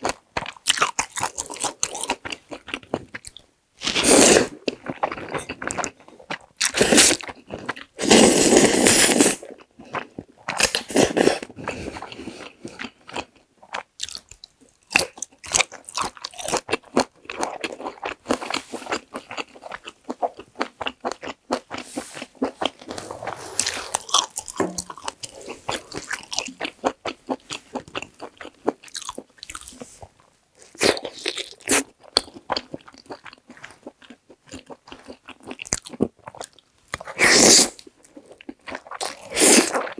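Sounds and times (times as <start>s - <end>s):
slurping noodles: 3.8s - 4.6s, 6.6s - 9.6s, 21.8s - 26.4s, 37.1s - 37.8s
wet chewing: 9.4s - 39.9s.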